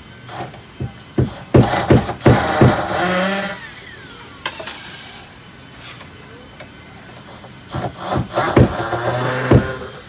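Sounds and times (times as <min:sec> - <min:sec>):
drill whining: 0:01.2 - 0:05.3, 0:07.3 - 0:10.0.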